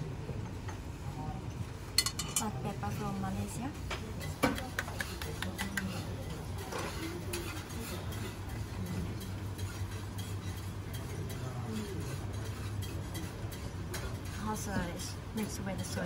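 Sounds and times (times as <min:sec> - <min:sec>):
spoon clinking on plate: 0:02.0 - 0:02.5.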